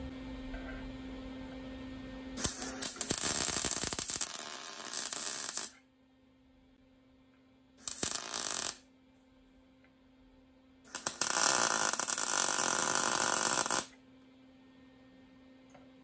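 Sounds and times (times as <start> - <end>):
arc welding buzz: 2.4 - 5.8, 7.8 - 8.9, 10.9 - 14.0.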